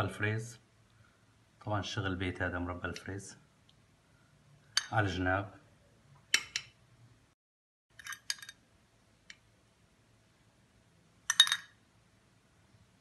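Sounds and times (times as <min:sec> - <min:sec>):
metal spoon clinking on plate: 0:04.7 - 0:05.0, 0:08.0 - 0:08.6, 0:11.3 - 0:11.8.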